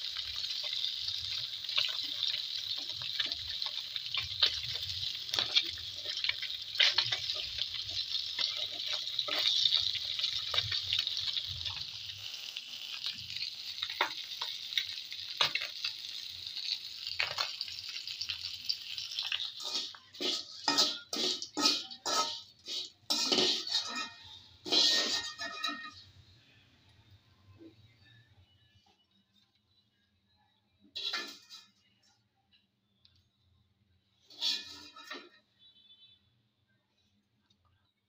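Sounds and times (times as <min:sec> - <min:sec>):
fish sizzling in oil: 0:00.0 - 0:26.3, 0:31.0 - 0:31.7, 0:34.2 - 0:35.3
spatula scraping pan: 0:00.4 - 0:11.8, 0:19.2 - 0:26.0, 0:31.0 - 0:31.8, 0:34.3 - 0:35.4.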